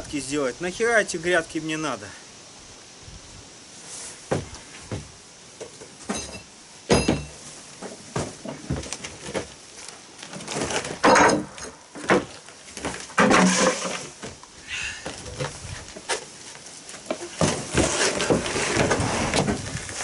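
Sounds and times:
boots on plank floor: 0:04.2 - 0:05.9, 0:06.9 - 0:09.6, 0:15.0 - 0:20.0
concrete slabs scraping and thumping: 0:10.3 - 0:14.4, 0:17.0 - 0:20.0.

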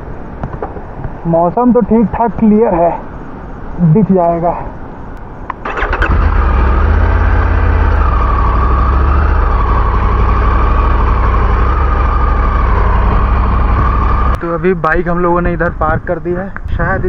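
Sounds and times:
motorcycle engine rumbling: 0:05.5 - 0:16.0.

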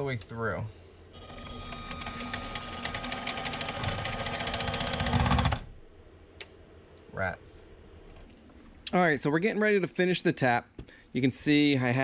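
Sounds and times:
lathe whirring with fine ticking: 0:01.2 - 0:05.6.

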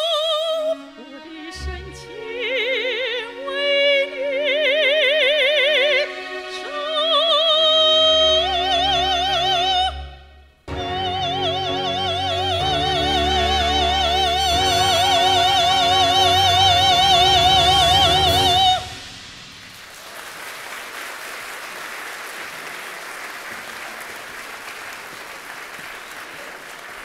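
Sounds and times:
orchestra chord: 0:10.7 - 0:20.2
audience applauding: 0:19.7 - 0:27.0.

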